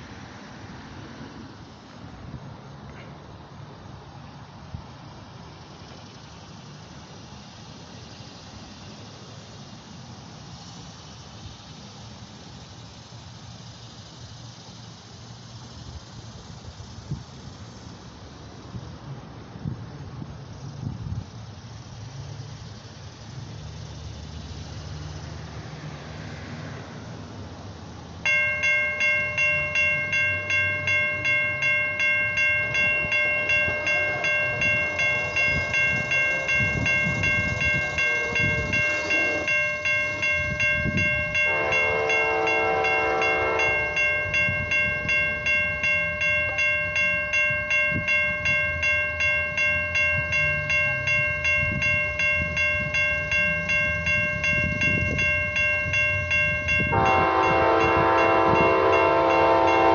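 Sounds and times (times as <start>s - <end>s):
railroad crossing bell ringing: 23.8s - 59.9s
train horn: 32.6s - 44.7s, 56.8s - 59.9s.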